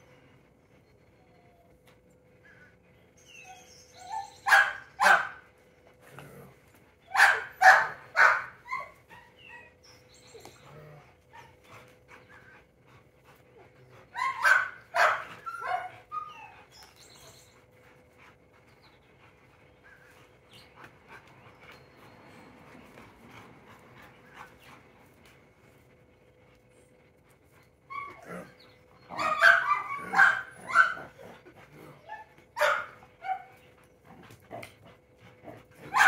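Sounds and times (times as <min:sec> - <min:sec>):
dog barking: 0:04.5 - 0:05.4, 0:07.2 - 0:08.5, 0:14.4 - 0:15.9, 0:29.1 - 0:31.1, 0:32.6 - 0:33.5.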